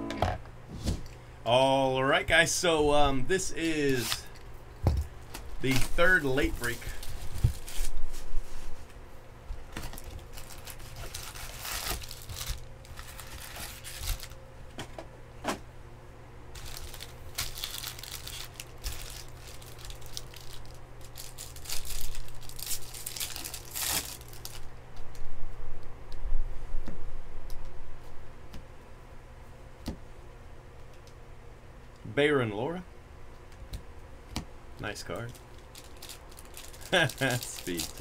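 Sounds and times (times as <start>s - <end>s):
foil wrappers crinkling: 3.4s - 4.4s, 5.0s - 8.8s, 9.7s - 14.4s, 16.6s - 24.7s, 34.8s - 38.0s
foil pack tearing: 3.6s - 4.3s, 5.4s - 8.0s, 9.7s - 14.4s, 16.6s - 24.7s, 35.2s - 38.0s.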